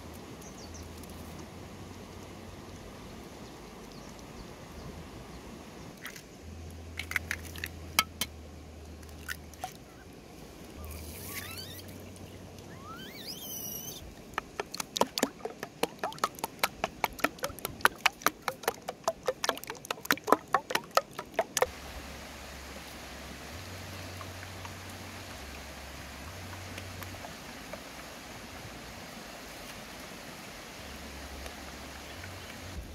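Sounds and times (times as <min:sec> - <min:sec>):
eggs cracking: 0:14.3 - 0:21.7
wooden ladle beating eggs in bowl: 0:14.4 - 0:21.7.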